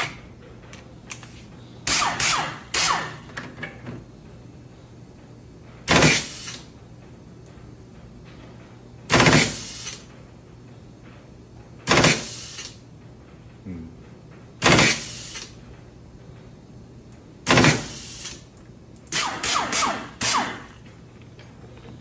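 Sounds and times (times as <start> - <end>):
pneumatic pulse tool bursts: 1.9 - 3.3, 5.9 - 6.6, 9.1 - 10.0, 11.9 - 12.8, 14.6 - 15.5, 17.4 - 18.4, 19.1 - 20.8.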